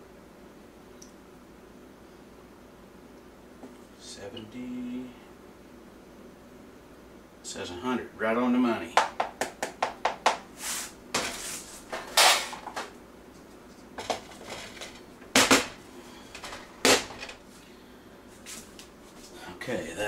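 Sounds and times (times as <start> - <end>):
short scraping sounds: 10.6 - 12.5
kitchen containers clattering: 11.2 - 12.9, 14.0 - 17.4.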